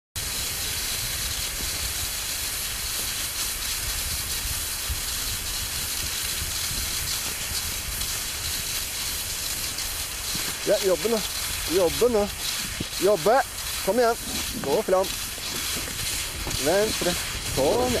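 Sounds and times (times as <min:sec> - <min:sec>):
skis gliding on snow: 0:00.2 - 0:18.0
wind buffeting microphone: 0:10.3 - 0:18.0.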